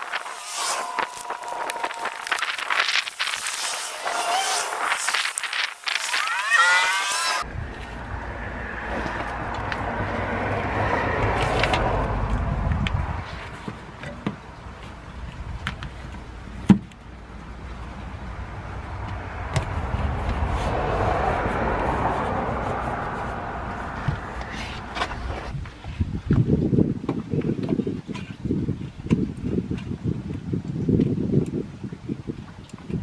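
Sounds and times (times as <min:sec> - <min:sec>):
road traffic rumble: 0:00.0 - 0:26.4.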